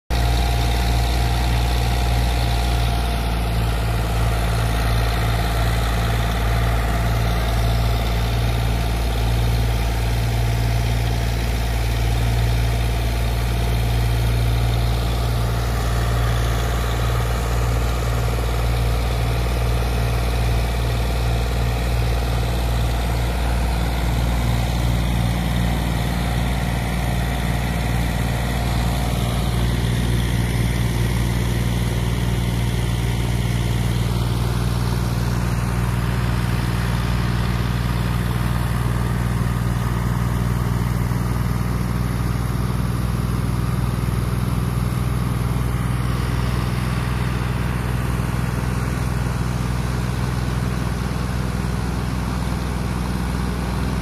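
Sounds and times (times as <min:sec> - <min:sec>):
tractor engine running: 0:00.1 - 0:54.0.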